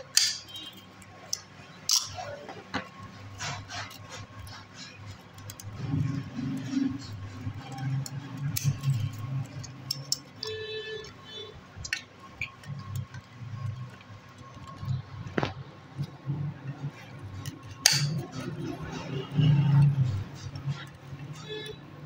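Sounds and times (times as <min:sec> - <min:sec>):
wire clicking and scraping: 0:00.0 - 0:22.0
snips cutting wire: 0:01.2 - 0:02.4, 0:07.6 - 0:10.6, 0:17.3 - 0:18.5.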